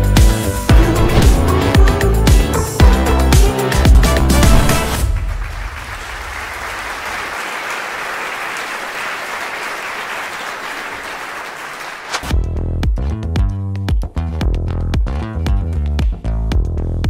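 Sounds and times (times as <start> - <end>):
music: 0.0 - 5.9, 12.2 - 17.0
audience applause: 3.9 - 12.2.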